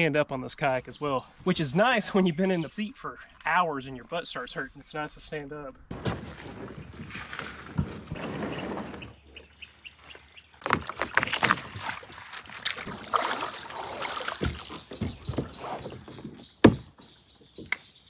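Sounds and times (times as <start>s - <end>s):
plastic hulls scraping over stones: 5.9s - 9.6s, 10.6s - 13.1s
water splashing: 9.4s - 15.9s
paddle knocking on hull: 10.6s - 17.0s.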